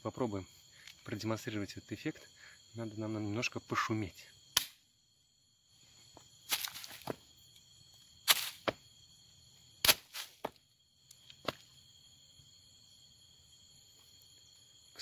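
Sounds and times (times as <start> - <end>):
night insects chirring: 0.0 - 15.0
knocking on forest floor: 6.5 - 7.2, 9.9 - 10.6, 11.4 - 11.6.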